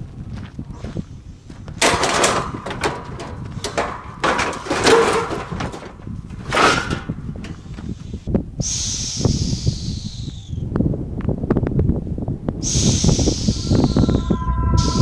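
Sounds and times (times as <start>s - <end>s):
scrap metal clattering and scraping: 1.8s - 7.6s
low rumble: 13.2s - 15.0s.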